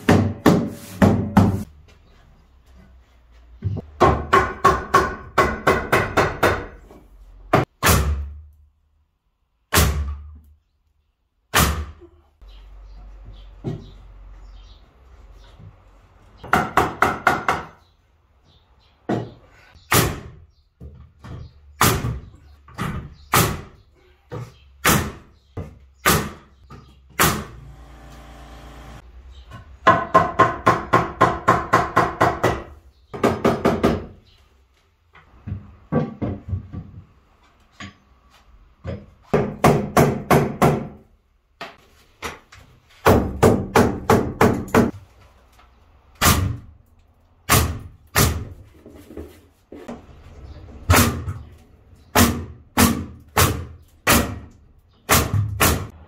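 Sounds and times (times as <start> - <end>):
nail gun shots into wood: 7.8 - 8.4, 11.5 - 12.0, 27.2 - 27.6, 46.2 - 46.7, 47.5 - 48.5, 55.1 - 55.9.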